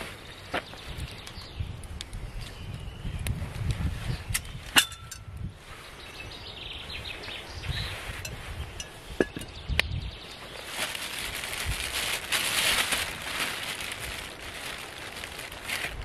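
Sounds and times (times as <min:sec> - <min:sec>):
plastic bag crinkling: 0:10.6 - 0:16.0.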